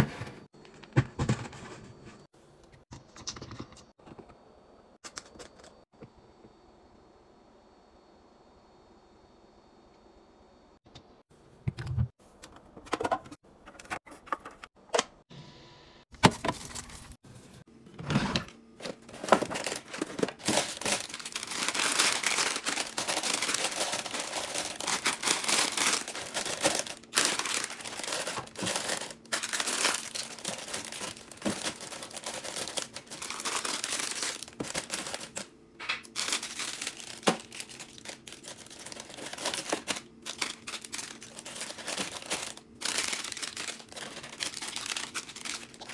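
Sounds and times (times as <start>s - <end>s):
foil packets crinkling: 18.8s - 45.9s.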